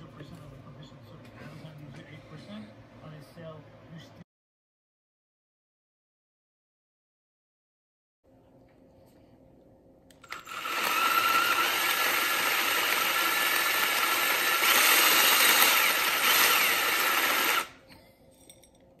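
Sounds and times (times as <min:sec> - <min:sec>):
cordless drill running: 0:10.2 - 0:17.8.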